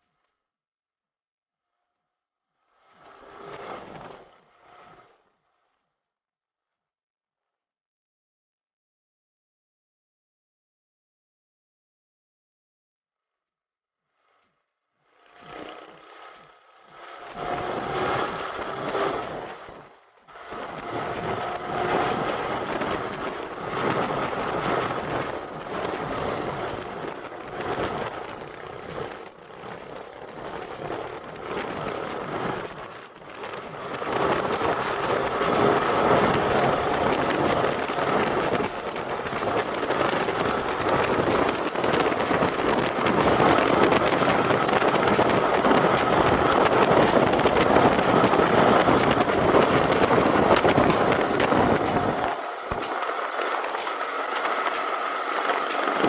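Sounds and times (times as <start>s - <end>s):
motorcycle engine running: 15.1s - 56.0s
wind rushing over microphone: 17.0s - 56.0s.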